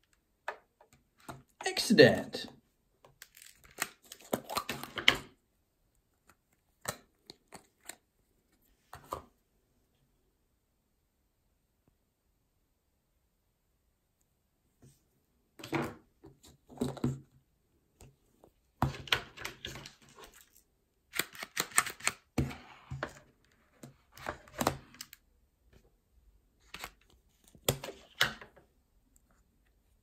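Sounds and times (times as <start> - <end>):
plastic toys clicking and clattering: 21.1 - 22.3.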